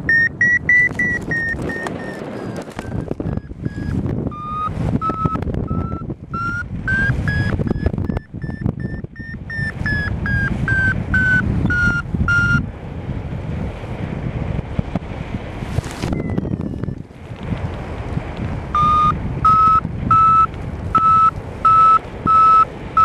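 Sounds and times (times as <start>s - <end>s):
variometer short beeps rising: 0.0s - 12.6s, 16.1s - 17.0s, 18.7s - 23.0s
wind rush: 0.0s - 23.0s.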